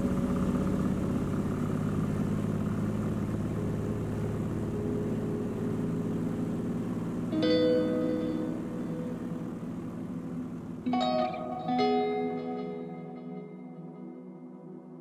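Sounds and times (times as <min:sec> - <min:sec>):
propeller plane engine running: 0:00.0 - 0:14.2
plucked-string music: 0:07.2 - 0:10.2, 0:10.8 - 0:15.0.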